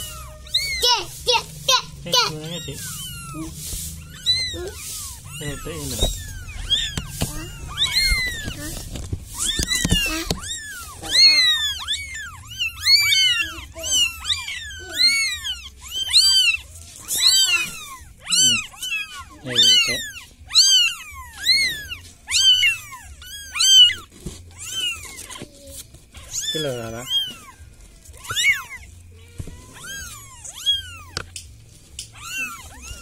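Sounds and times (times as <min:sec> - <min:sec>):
kittens mewing: 0:00.0 - 0:33.0.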